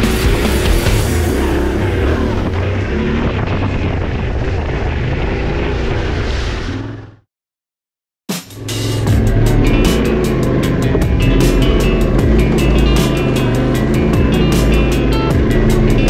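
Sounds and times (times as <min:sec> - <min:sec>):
rock music: 0:00.0 - 0:02.4, 0:08.3 - 0:16.0
motorcycle engine running: 0:00.0 - 0:04.7, 0:08.6 - 0:16.0.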